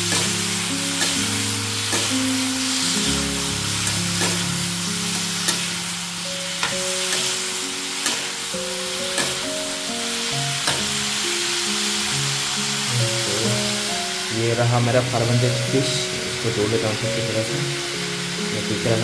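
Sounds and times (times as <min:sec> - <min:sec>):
steel ladle scraping a pan: 0:00.0 - 0:09.9
vegetables sizzling in oil: 0:00.0 - 0:19.0.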